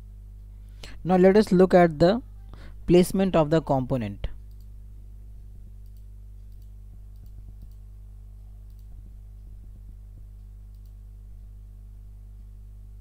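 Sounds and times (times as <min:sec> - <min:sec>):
low hum: 0:00.0 - 0:13.0
computer mouse clicks: 0:05.8 - 0:07.8, 0:08.6 - 0:09.0, 0:10.4 - 0:11.5.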